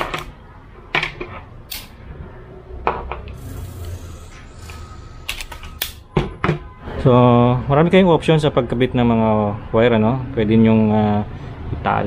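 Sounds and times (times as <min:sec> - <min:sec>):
wire stripper snapping: 0:01.7 - 0:01.9.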